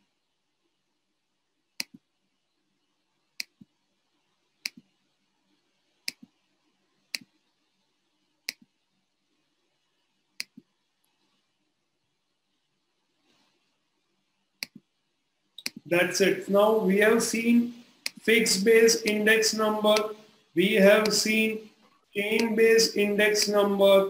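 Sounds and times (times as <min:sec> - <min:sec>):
computer mouse clicking: 0:01.8 - 0:02.0, 0:04.6 - 0:04.9, 0:10.4 - 0:10.7.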